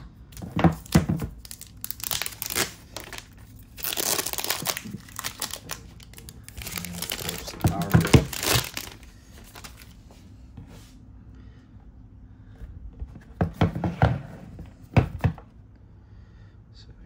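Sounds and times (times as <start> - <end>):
faint steady hum: 0.0 - 17.0
plastic knocking on wooden desk: 14.9 - 15.5.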